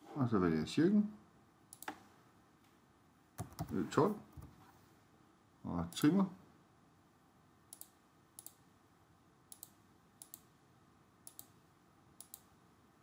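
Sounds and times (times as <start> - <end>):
faint room hiss: 0.0 - 13.0
computer mouse clicking: 1.7 - 2.0, 3.4 - 3.8, 7.7 - 8.6, 9.5 - 10.5, 11.2 - 11.6, 12.2 - 12.5.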